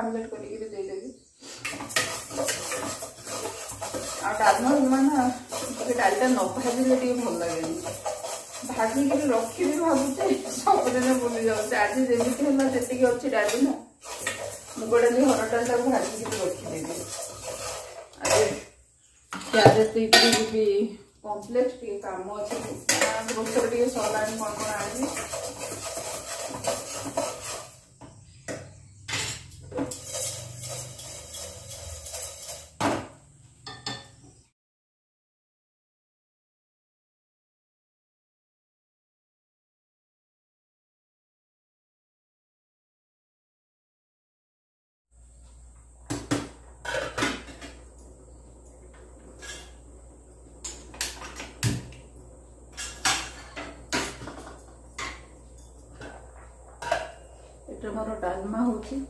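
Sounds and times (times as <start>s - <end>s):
cookware clanking on stove: 1.6s - 18.7s, 19.3s - 20.6s, 22.4s - 27.6s, 28.5s - 34.2s, 52.7s - 57.3s
metal frying pan and utensils clinking: 1.6s - 18.7s, 19.3s - 20.7s, 22.4s - 27.7s, 29.1s - 33.0s, 33.6s - 34.2s, 46.8s - 47.8s, 52.7s - 56.2s, 56.8s - 57.3s.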